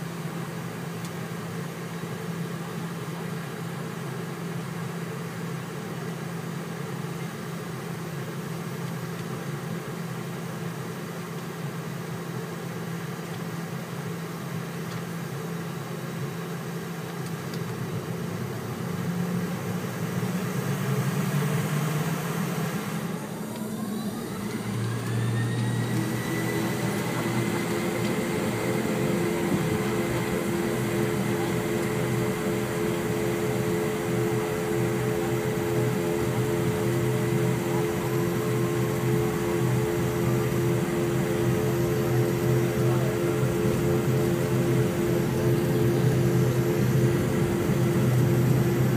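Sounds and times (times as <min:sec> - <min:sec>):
rising engine whine: 0:17.9 - 0:48.9
jet engines spooling up: 0:18.4 - 0:48.9.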